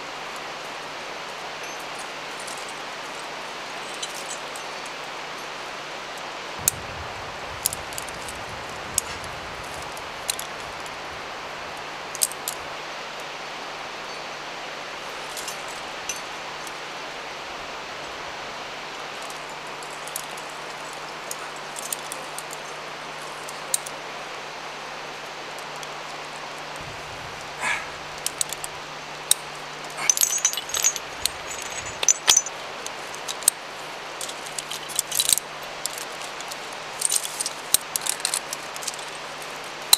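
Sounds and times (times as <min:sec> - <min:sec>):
steady background hiss: 0:00.0 - 0:39.9
climbing hardware clinking: 0:03.8 - 0:04.9, 0:15.2 - 0:16.3, 0:19.2 - 0:24.0, 0:27.6 - 0:33.6, 0:34.2 - 0:39.9.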